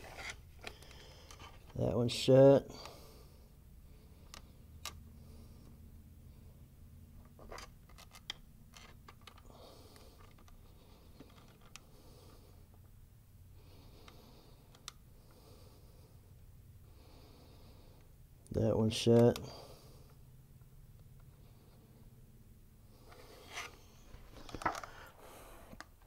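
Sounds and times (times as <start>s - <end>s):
cable clicks and scrapes: 7.2s - 11.9s.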